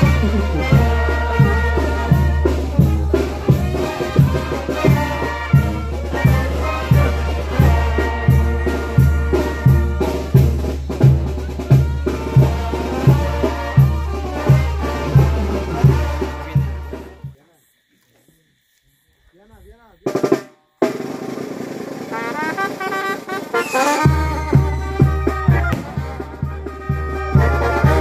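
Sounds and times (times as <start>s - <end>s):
brass band playing: 0.0s - 17.3s, 20.1s - 28.0s
bass drum beat: 0.0s - 17.4s, 24.0s - 28.0s.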